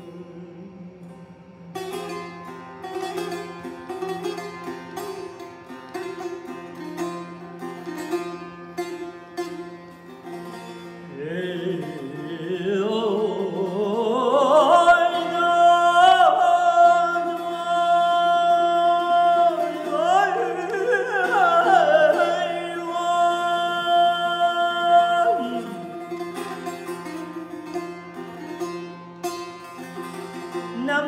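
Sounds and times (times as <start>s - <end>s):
man singing ornamented vocal: 0.0s - 2.2s, 11.1s - 26.9s, 30.7s - 31.0s
steady held drone tone: 0.0s - 5.3s
plucked long-necked lute: 0.0s - 31.0s.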